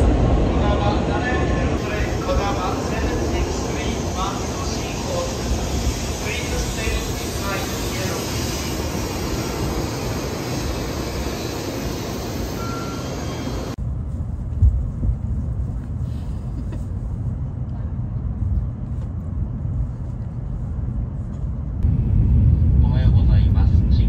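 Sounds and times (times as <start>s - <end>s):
train rushing past platform: 0.0s - 14.4s
train rumble inside cabin: 0.0s - 24.0s.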